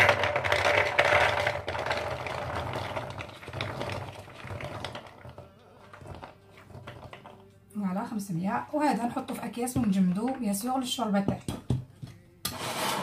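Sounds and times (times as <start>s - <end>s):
chickpeas clattering into plastic bowl: 0.0s - 7.4s.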